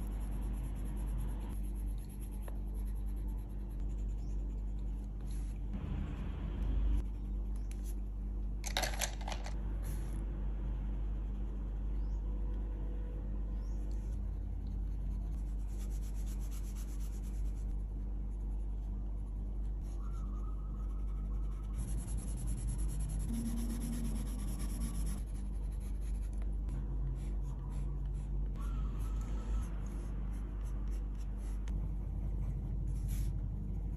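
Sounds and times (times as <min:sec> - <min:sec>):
pencils scratching on paper: 0:00.0 - 0:05.7, 0:13.9 - 0:19.0, 0:20.8 - 0:33.9.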